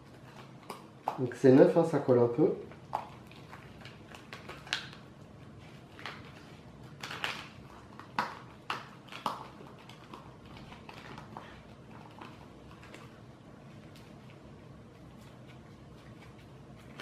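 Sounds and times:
plastic pouch crinkling and clicking: 2.8s - 5.2s, 5.8s - 13.2s.

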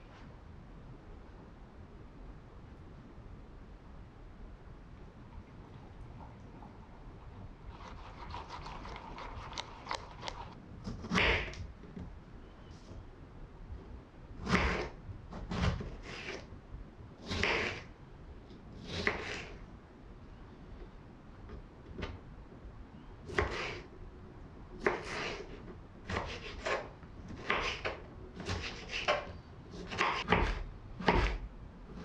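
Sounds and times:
low room rumble: 0.0s - 32.0s
spatula stirring wet oats: 7.2s - 10.6s
knife slicing strawberries on board: 14.4s - 16.4s, 17.2s - 17.9s, 23.3s - 23.8s, 24.8s - 31.4s.

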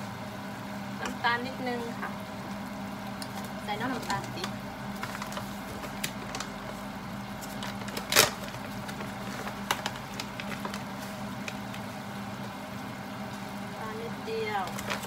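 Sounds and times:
steady hum: 0.0s - 15.0s
food crackling in a pan: 0.5s - 15.0s.

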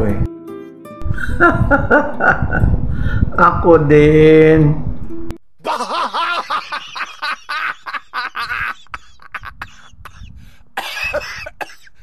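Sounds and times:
man laughing: 1.2s - 2.8s, 5.6s - 11.6s.

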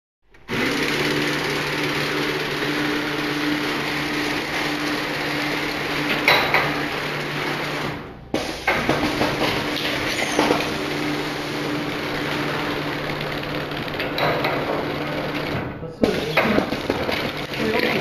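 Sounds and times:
machine humming: 0.3s - 18.0s
clatter of moving parts: 8.4s - 10.8s, 13.0s - 18.0s
sharp machine clacks: 8.4s - 18.0s.

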